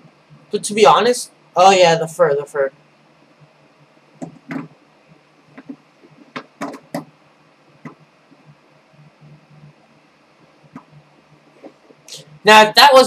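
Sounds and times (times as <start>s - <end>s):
steady low hum: 0.0s - 13.0s
faint clicks and knocks: 3.4s - 7.1s.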